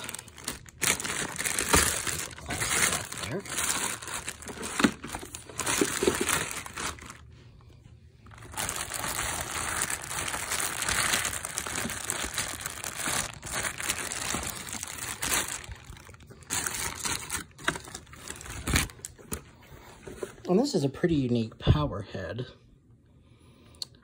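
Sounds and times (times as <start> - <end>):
plastic bag crinkling: 0.0 - 7.3, 8.2 - 19.5.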